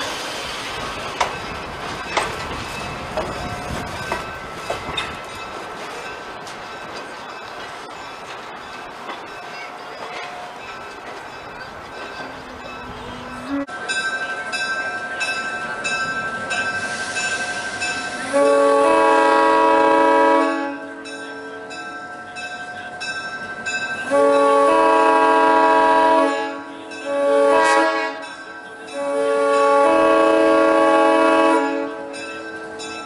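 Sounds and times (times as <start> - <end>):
bell clanging: 1.2 - 18.1
locomotive air horn blasts: 13.4 - 13.7, 18.2 - 21.0, 24.0 - 28.3, 29.0 - 32.2.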